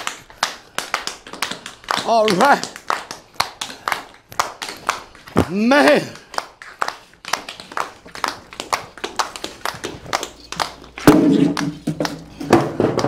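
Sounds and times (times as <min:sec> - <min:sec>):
tap shoes on hard floor: 0:00.0 - 0:13.0
person calling out: 0:05.4 - 0:06.2.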